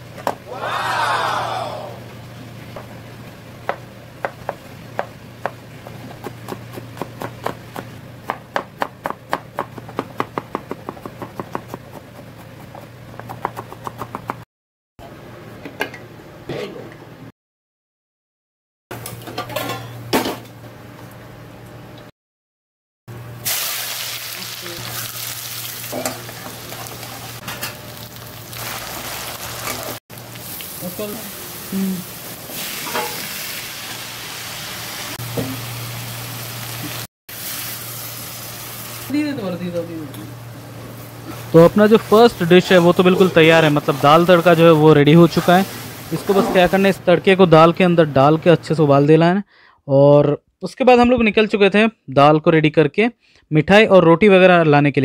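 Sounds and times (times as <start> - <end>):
knife chopping vegetables on board: 3.6 - 14.4
food sizzling in hot oil: 23.4 - 39.2, 41.0 - 46.9.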